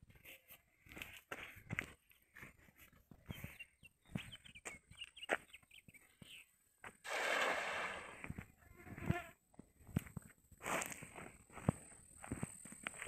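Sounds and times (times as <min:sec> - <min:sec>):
net splashing onto water: 0:07.0 - 0:08.4.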